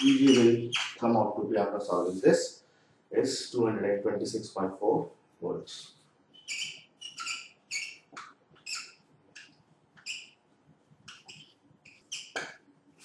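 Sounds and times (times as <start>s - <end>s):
marker squeaking on a board: 0.0s - 1.1s, 6.3s - 12.7s.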